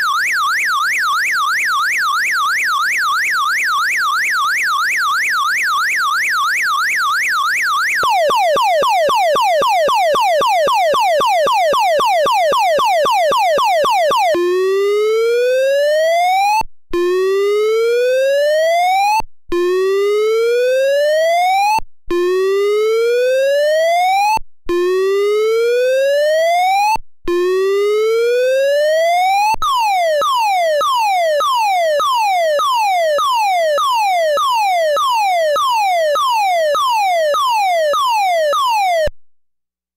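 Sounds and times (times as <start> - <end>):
electronic car horn siren tones: 0.0 - 16.0, 27.4 - 39.1.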